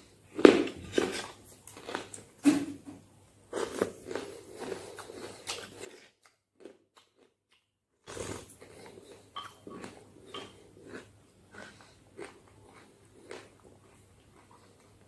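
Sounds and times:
chewing: 3.5s - 15.0s.

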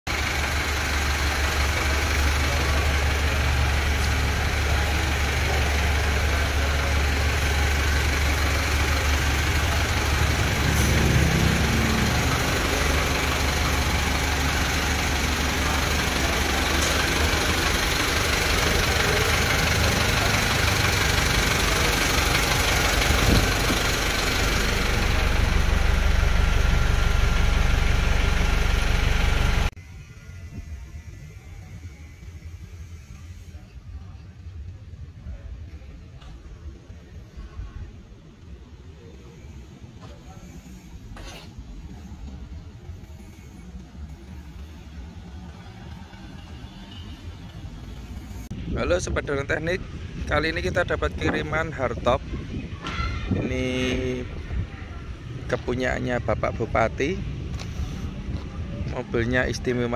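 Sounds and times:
engine idling: 0.1s - 29.8s, 38.4s - 48.6s.

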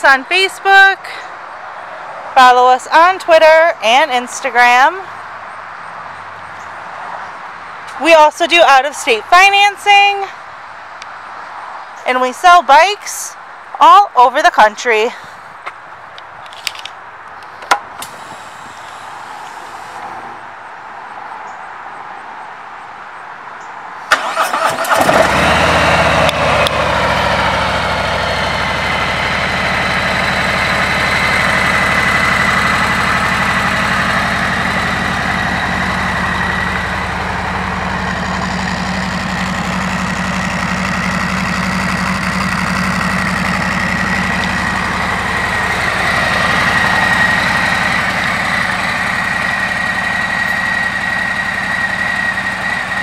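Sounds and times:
motorcycle engine starting and idling: 24.1s - 53.0s.

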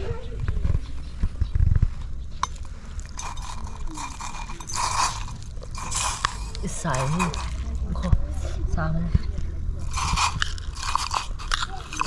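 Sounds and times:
metal spoon scraping in pot: 2.4s - 8.0s, 9.8s - 12.0s.

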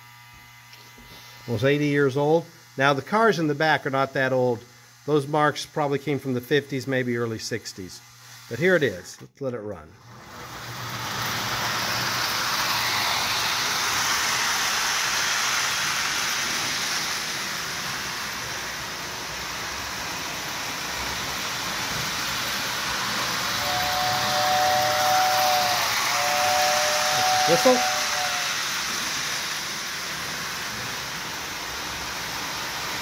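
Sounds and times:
toy train whirring and rattling: 10.0s - 33.0s
two-note train whistle: 23.5s - 28.8s.

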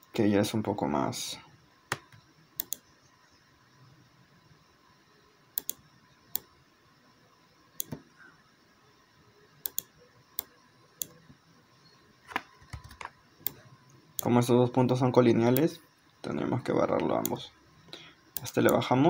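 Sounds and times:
faint room hiss: 0.0s - 19.0s
computer mouse button clicks: 1.9s - 2.8s.

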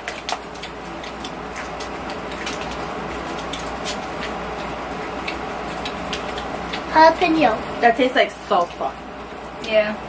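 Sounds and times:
potato chips crunching: 0.0s - 7.2s.

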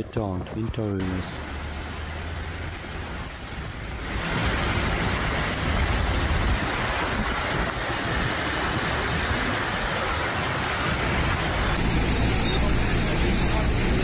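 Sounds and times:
rain and tyre spray hiss: 1.0s - 11.8s
traffic engine noise: 1.0s - 14.0s.

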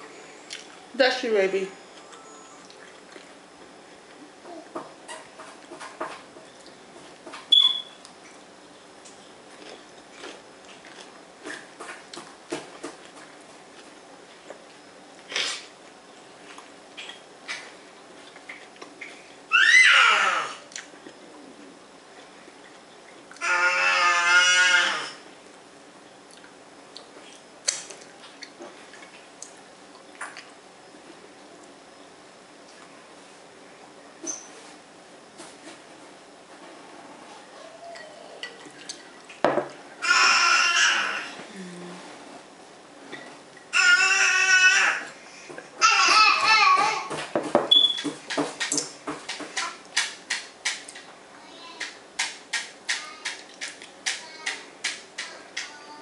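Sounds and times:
chewing and crunching food: 1.9s - 4.4s, 9.0s - 19.4s, 26.2s - 30.6s
person humming: 41.3s - 42.2s.

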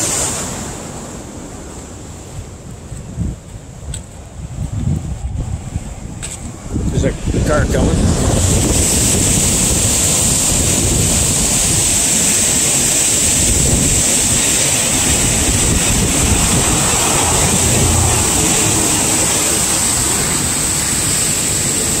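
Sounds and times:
roar of whitewater rapids: 0.0s - 2.7s, 7.2s - 22.0s
wind gusting on microphone: 0.0s - 22.0s.

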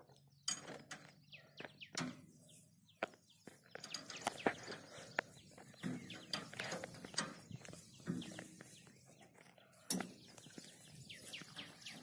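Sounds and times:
faint bird chirps: 0.0s - 12.0s.

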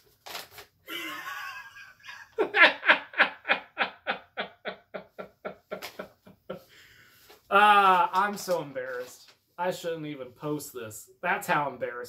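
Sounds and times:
paper rustling: 0.0s - 0.8s, 5.7s - 6.2s, 7.1s - 9.6s
man laughing hard: 0.9s - 6.7s.

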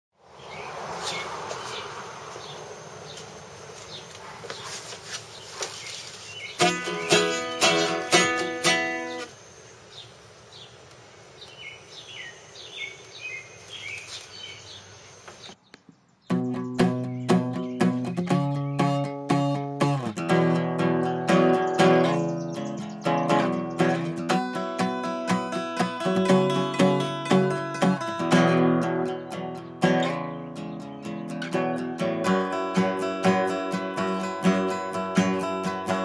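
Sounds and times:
acoustic guitar: 6.4s - 9.3s, 16.3s - 36.0s.

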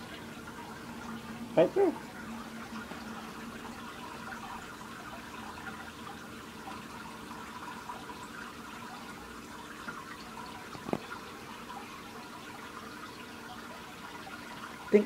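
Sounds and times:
aquarium filter water trickling: 0.0s - 15.0s.

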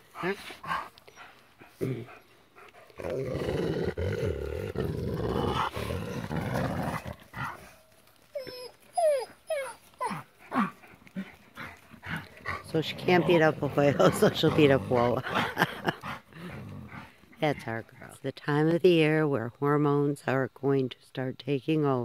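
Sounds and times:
wolf growling: 0.0s - 18.3s
wolf whining: 0.2s - 17.2s.

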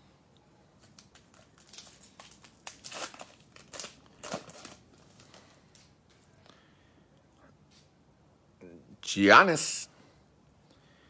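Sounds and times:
wrapper tearing and crinkling: 0.8s - 5.4s
cards rustling: 0.8s - 5.9s.

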